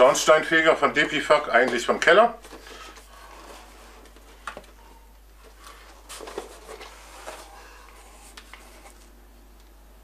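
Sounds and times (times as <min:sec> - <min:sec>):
cardboard rustling: 0:01.0 - 0:04.8, 0:05.4 - 0:09.2.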